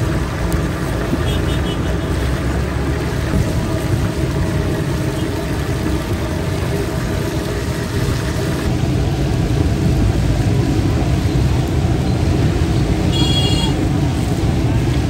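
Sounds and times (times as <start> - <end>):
gas burner rumble: 0.0 - 15.0
oil sizzling and bubbling: 0.0 - 15.0.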